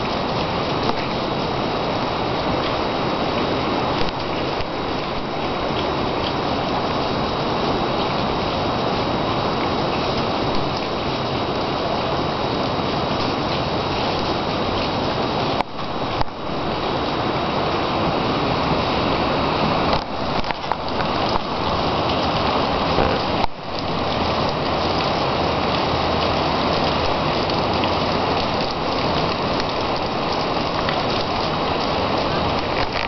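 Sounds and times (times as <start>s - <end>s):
water rushing: 0.0s - 33.0s.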